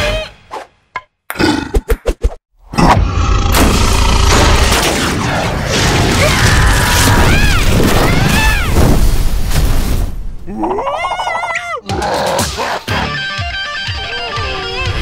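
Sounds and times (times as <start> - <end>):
cartoon character squealing: 10.6 - 12.9.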